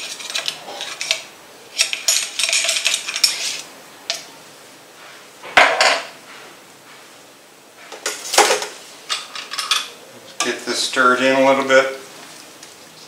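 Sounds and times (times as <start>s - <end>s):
cookware clatter: 0.0s - 3.4s, 5.6s - 6.1s, 7.9s - 10.6s
metal utensils clinking and scraping: 0.0s - 4.2s, 7.9s - 10.6s.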